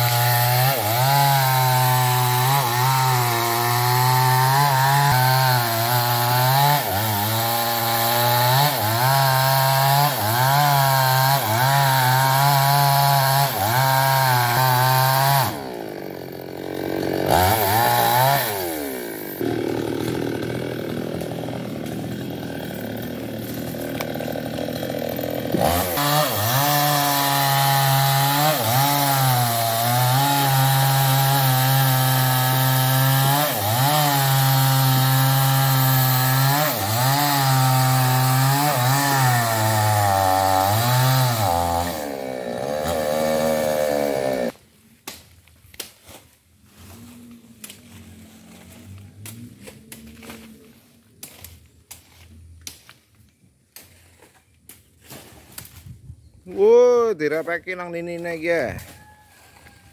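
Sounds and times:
chainsaw cutting wood: 0:00.0 - 0:46.0.

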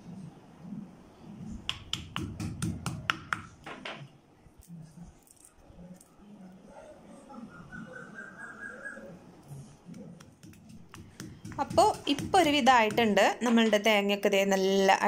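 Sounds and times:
stone mortar being knocked: 0:10.2 - 0:13.8.

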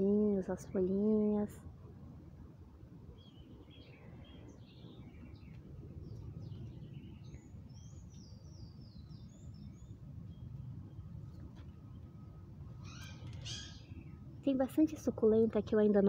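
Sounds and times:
low outdoor rumble: 0:00.0 - 0:16.0
small birds chirping: 0:03.1 - 0:14.6.

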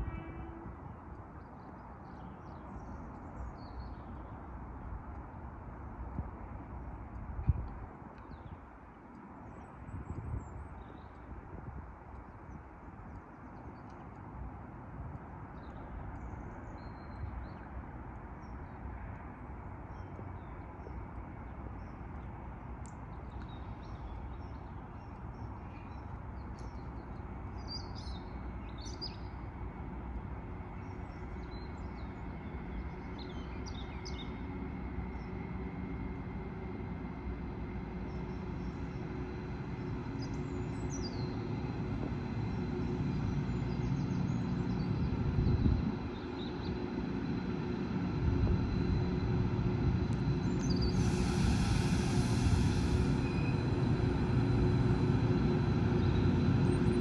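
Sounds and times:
diesel locomotive engine rumble: 0:00.0 - 0:57.0
air hiss: 0:50.6 - 0:54.4.

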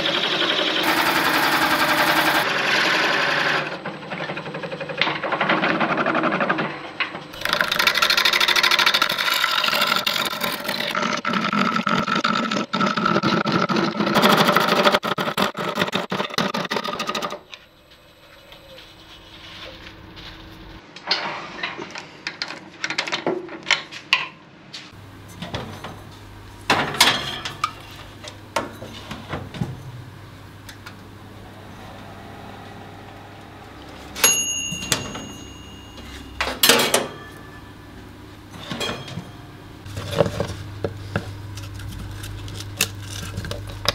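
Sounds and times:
lathe running: 0:00.0 - 0:03.8, 0:30.0 - 0:40.2
gouge cutting wood on lathe: 0:00.1 - 0:03.7.

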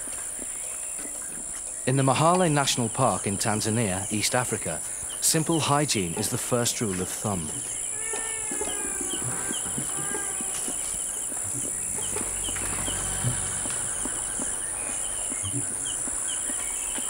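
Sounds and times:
chimpanzees grooming clicks: 0:06.2 - 0:11.7
chirping trills: 0:07.6 - 0:17.0
high-pitched insect drone: 0:07.8 - 0:16.7.

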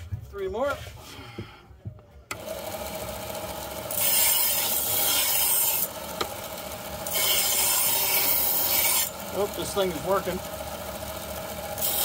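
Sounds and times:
belt grinder motor humming: 0:02.3 - 0:12.0
knife blade grinding on belt: 0:07.1 - 0:09.1.

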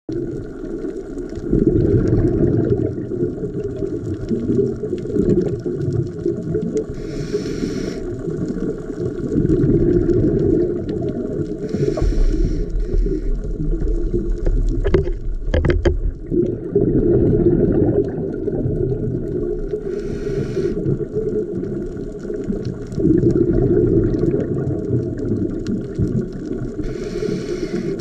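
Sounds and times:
diver exhaling bubbles underwater: 0:00.1 - 0:28.0
regulator inhalation hiss: 0:06.9 - 0:08.2, 0:11.6 - 0:13.4, 0:19.8 - 0:20.9, 0:26.8 - 0:28.0.

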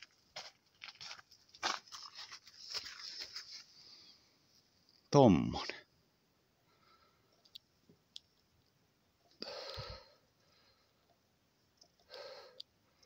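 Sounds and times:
close breaths: 0:03.5 - 0:04.6, 0:06.6 - 0:07.5, 0:09.4 - 0:11.3, 0:11.9 - 0:13.0
faint clicks: 0:07.3 - 0:08.7, 0:11.0 - 0:13.0.

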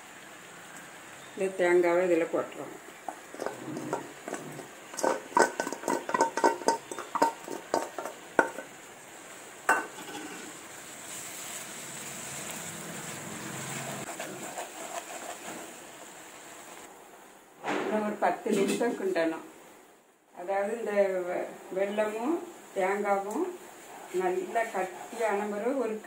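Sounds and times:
syrup bubbling and hissing: 0:02.4 - 0:16.9
metallic clinks of steel bowl: 0:03.3 - 0:08.6, 0:09.7 - 0:10.4.

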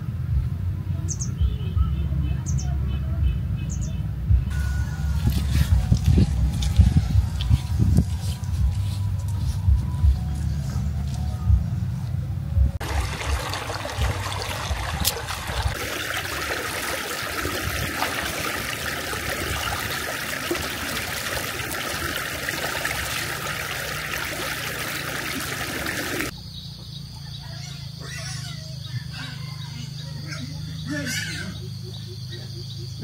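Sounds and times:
dull low thumps: 0:04.2 - 0:15.9
running water rushing: 0:12.8 - 0:26.3.

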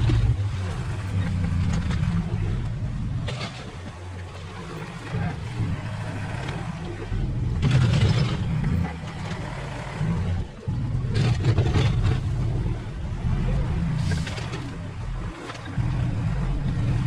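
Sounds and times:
earth-moving machine engine: 0:00.0 - 0:17.0
rattling and scraping: 0:07.6 - 0:09.5.

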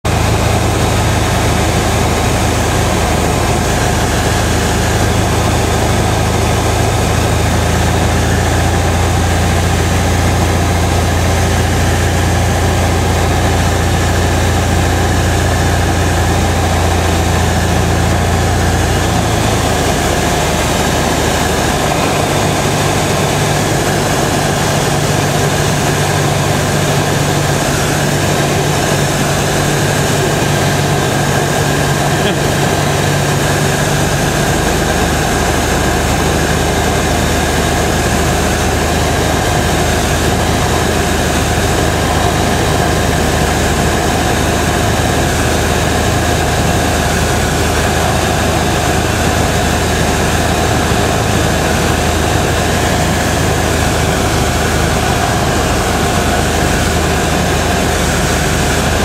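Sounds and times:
propeller aircraft engine droning: 0:00.0 - 0:59.0
cabin air noise: 0:16.1 - 0:34.6.

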